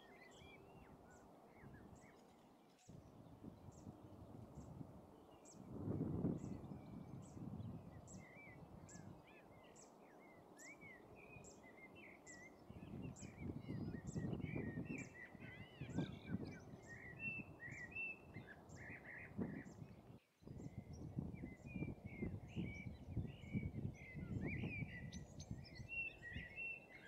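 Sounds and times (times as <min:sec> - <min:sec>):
songbirds chirping: 0:00.0 - 0:27.0.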